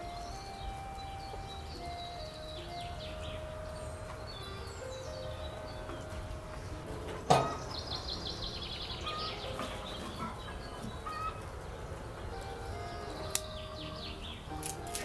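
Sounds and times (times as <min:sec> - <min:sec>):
bird chirping rapidly: 0:00.0 - 0:06.8, 0:07.5 - 0:11.4
scattered bird calls: 0:00.0 - 0:15.0
stove door metal clank: 0:07.1 - 0:07.8.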